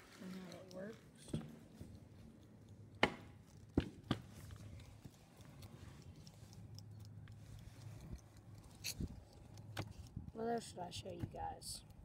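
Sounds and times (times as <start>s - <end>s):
sharp knocks: 3.0s - 4.2s.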